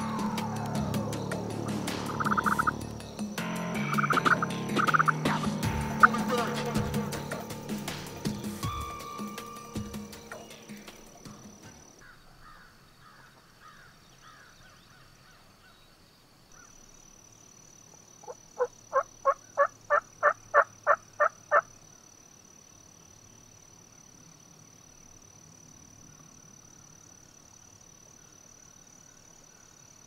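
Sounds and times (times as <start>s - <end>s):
turkey yelping: 2.0s - 2.8s, 3.8s - 6.6s.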